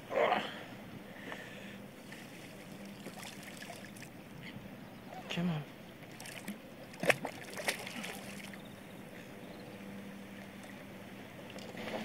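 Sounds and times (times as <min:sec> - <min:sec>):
fish thrashing water splashes: 0:02.8 - 0:04.1, 0:06.1 - 0:08.6.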